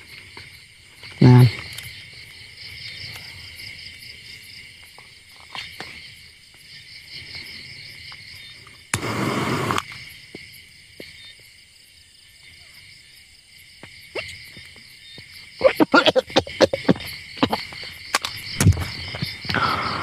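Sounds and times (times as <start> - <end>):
crickets chirring: 0.0 - 20.0
loud burst of noise: 9.0 - 9.8.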